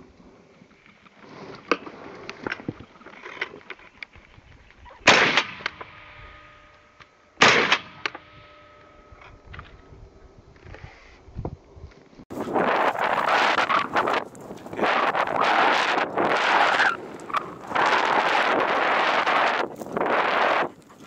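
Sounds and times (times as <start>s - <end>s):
shotgun shots with echo: 5.0s - 6.0s, 7.4s - 8.2s.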